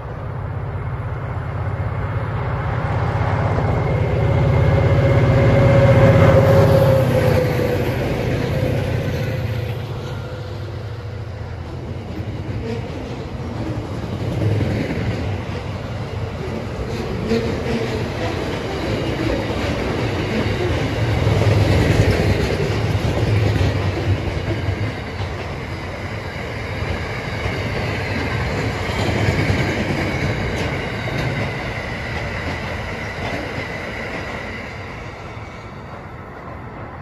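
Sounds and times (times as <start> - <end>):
train wheels rumbling on rails: 0.0 - 37.0
clickety-clack of wheels: 11.6 - 34.6.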